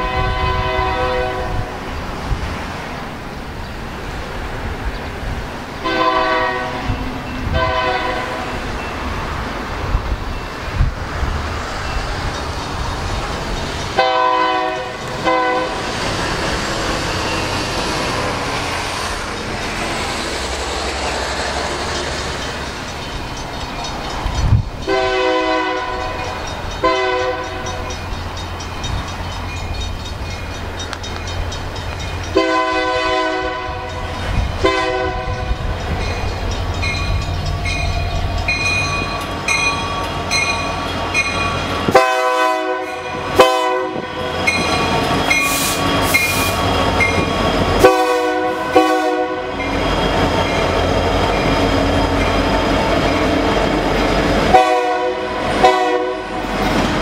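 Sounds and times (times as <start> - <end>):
locomotive horn blasts: 0.0 - 1.7, 5.8 - 8.6, 14.0 - 15.9, 24.8 - 26.2, 26.8 - 27.8, 32.3 - 35.5, 41.9 - 47.2, 47.8 - 49.7, 54.5 - 56.5
diesel engines rumbling: 0.0 - 57.0.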